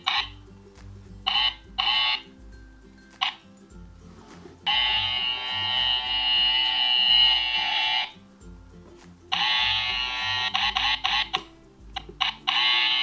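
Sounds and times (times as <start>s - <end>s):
toy electric hair trimmer buzzing: 4.7s - 8.1s, 9.4s - 11.4s, 12.4s - 13.0s.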